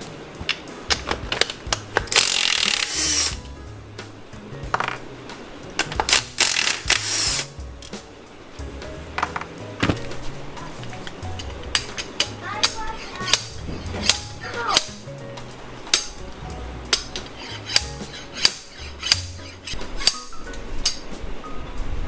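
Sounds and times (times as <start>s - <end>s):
tool and bolt clicks and knocks: 0.4s - 3.4s.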